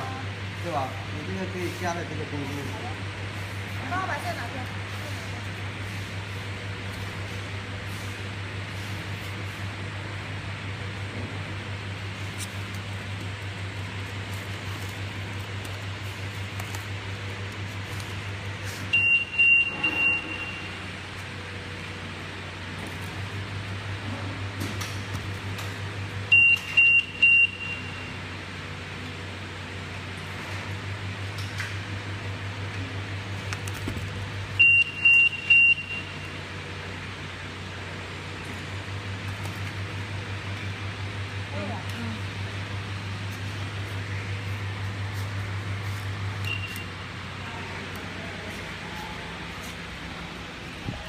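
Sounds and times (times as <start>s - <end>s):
conveyor humming: 0.0s - 51.0s
short high alarm beeps: 18.9s - 20.9s, 26.3s - 28.2s, 34.6s - 36.4s, 46.4s - 47.0s.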